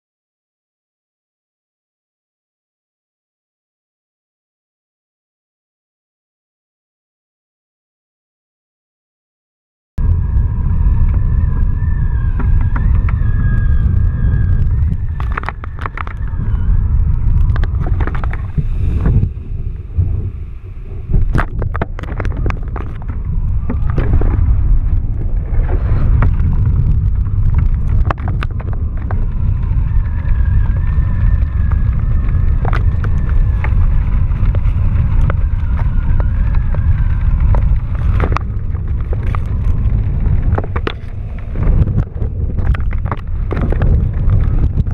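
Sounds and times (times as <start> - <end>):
crackles: 10.0 - 44.9
thin wavering whine: 10.0 - 44.9
wind buffeting microphone: 10.0 - 44.9.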